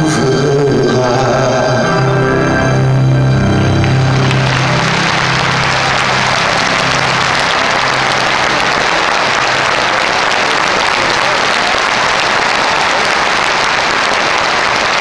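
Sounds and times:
audience applauding: 3.5 - 15.0.

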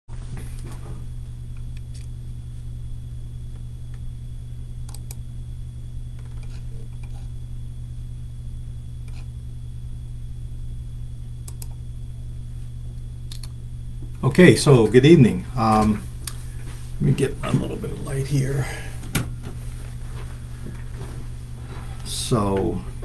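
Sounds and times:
low room tone hum: 0.1 - 23.0
faint clicks: 4.8 - 5.2, 11.4 - 11.8, 13.3 - 13.6.

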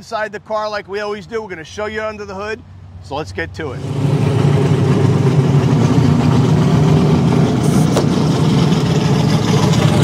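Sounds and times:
car engine idling: 3.6 - 10.0.

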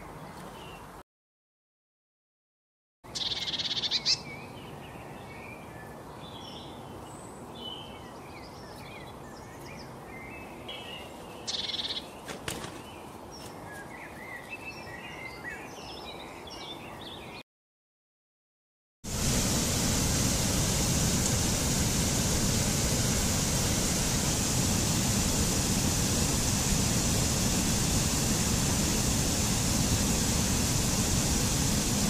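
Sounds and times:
outdoor background noise: 0.0 - 1.0, 3.1 - 17.4, 19.1 - 32.0
songbirds chirping: 0.0 - 1.0, 3.1 - 17.4.

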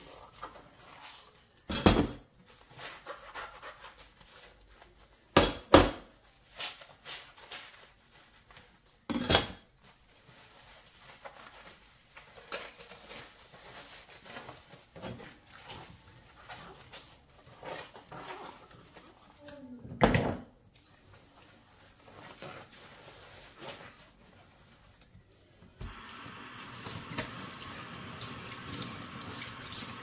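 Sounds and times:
rustling: 6.1 - 19.8, 20.7 - 25.8.

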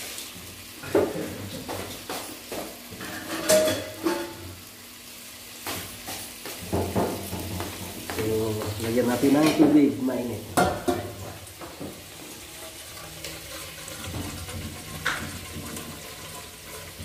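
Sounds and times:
metal bowl and utensils clinking: 3.0 - 4.4, 12.6 - 17.0.

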